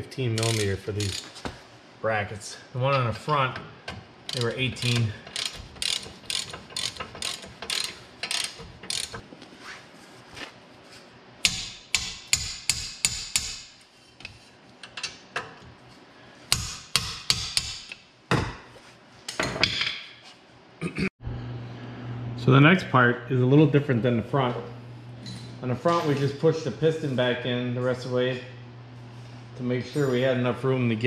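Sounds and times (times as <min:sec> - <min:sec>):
ratcheting wrench clicking: 0:00.4 - 0:01.3, 0:04.3 - 0:09.2.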